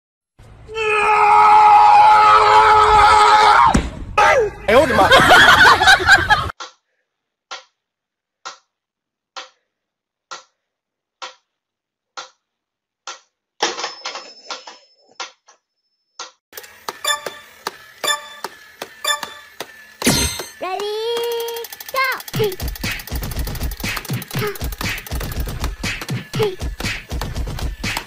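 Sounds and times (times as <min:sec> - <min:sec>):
clatter of clicks and tones: 0:16.6 - 0:26.2
metronome ticking: 0:18.0 - 0:19.5.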